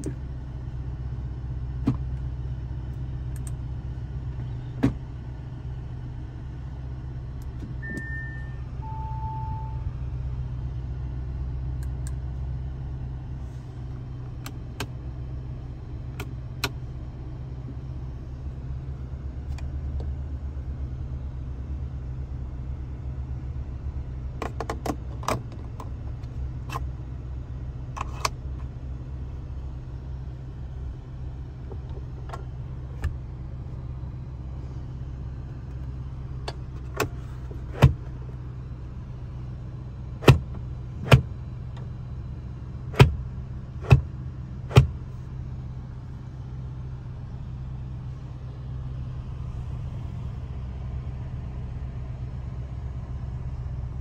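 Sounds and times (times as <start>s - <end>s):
car cabin engine and road drone: 0.0s - 54.0s
two-note chime: 7.8s - 9.9s.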